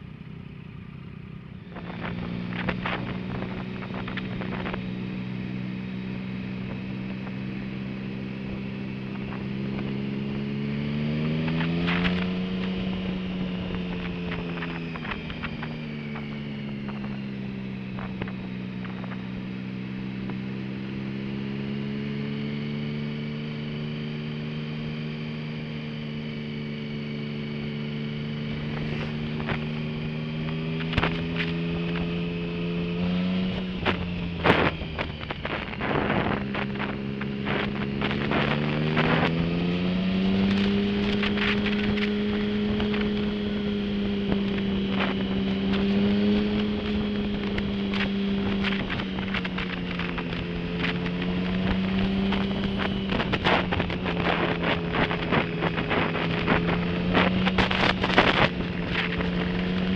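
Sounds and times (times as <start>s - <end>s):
motorcycle engine running: 0.0s - 59.9s
wind noise on microphone: 1.7s - 20.7s, 27.9s - 59.9s.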